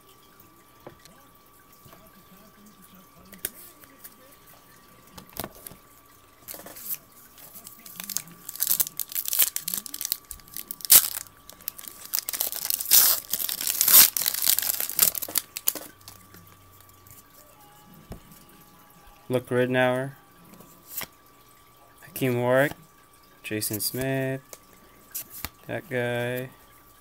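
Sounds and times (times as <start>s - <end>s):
wrapper tearing and crinkling: 7.6s - 16.2s.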